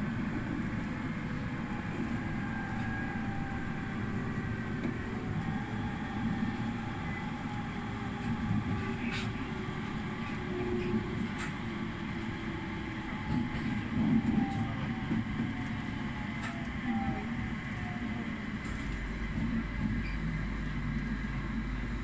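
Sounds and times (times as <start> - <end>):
faint whining tones: 0.0 - 22.0
train wheels rumbling on rail: 0.0 - 22.0.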